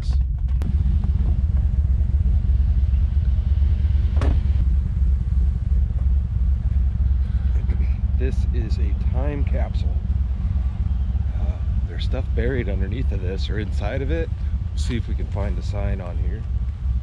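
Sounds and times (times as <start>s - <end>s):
truck engine idling: 0.0s - 17.0s.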